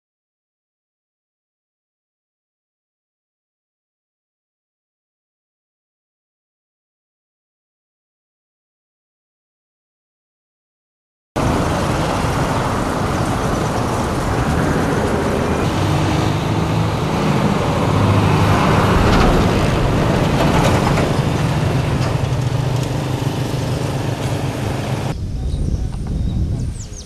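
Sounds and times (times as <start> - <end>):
vehicle engine running: 11.4 - 25.2
loud dense noise: 11.4 - 26.7.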